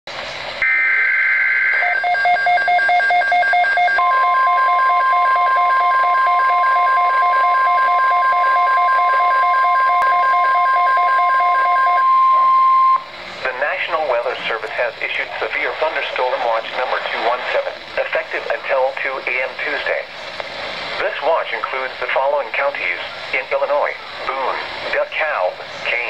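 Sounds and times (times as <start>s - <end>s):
digital header tones: 0.6s - 13.1s
rapidly pulsing alarm beep: 0.6s - 13.1s
steady single-pitch alarm tone: 0.6s - 13.1s.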